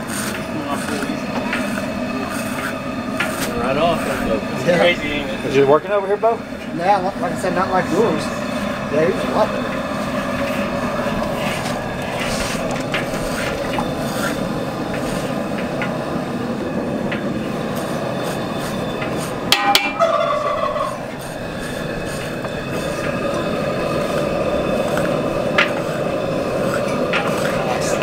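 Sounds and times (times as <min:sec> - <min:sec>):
metal scrapers scraping hide: 0:00.0 - 0:16.1.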